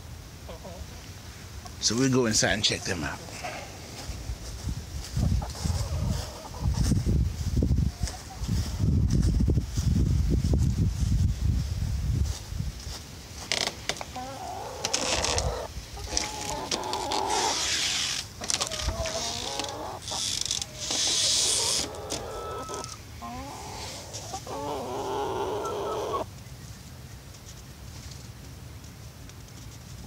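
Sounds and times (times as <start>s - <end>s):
hens clucking: 0.4s - 4.2s, 5.0s - 7.0s, 7.8s - 9.0s, 13.9s - 26.3s
rustling: 3.0s - 22.9s.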